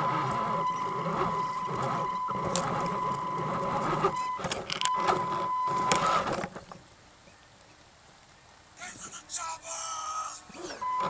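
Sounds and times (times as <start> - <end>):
low hum: 0.0 - 6.4
electric motor and gears whining: 0.0 - 6.6
clicks and scraping: 0.0 - 6.8.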